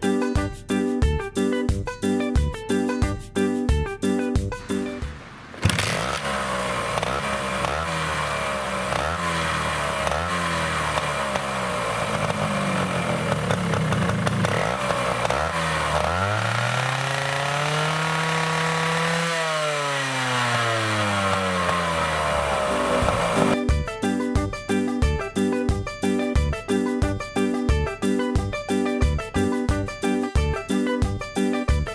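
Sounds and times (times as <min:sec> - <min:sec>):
two-stroke motorcycle engine revving: 0:04.6 - 0:23.6.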